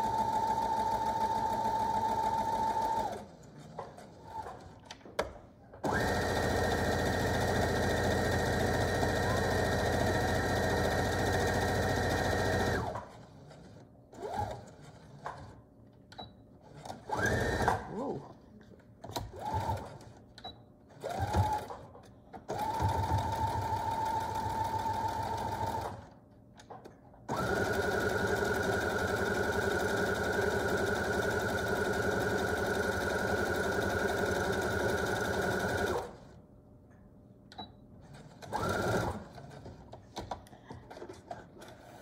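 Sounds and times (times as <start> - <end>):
electric sewing machine stitching: 0.0 - 3.3, 5.8 - 15.4, 16.7 - 18.2, 21.0 - 21.9, 22.5 - 26.1, 27.3 - 36.3, 38.3 - 39.8.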